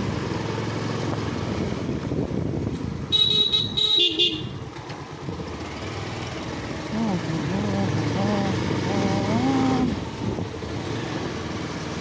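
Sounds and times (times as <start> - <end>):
motorcycle engine running: 0.0 - 12.0
horn honking: 3.1 - 4.7.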